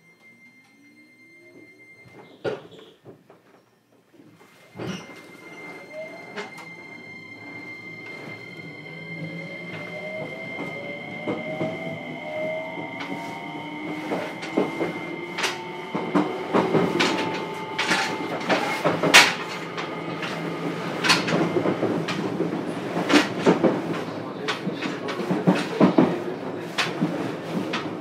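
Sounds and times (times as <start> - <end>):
electric train motors whining: 5.1 - 23.5
wheels clacking over rail joints: 12.7 - 28.0.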